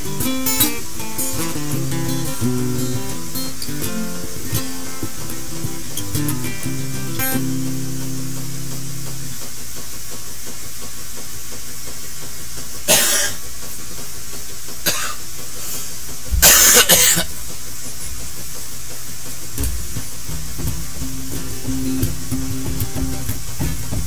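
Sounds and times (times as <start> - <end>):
acoustic guitar strumming: 0.0 - 9.6, 19.6 - 24.0
steady hiss: 0.0 - 24.0
man coughing: 16.4 - 17.3.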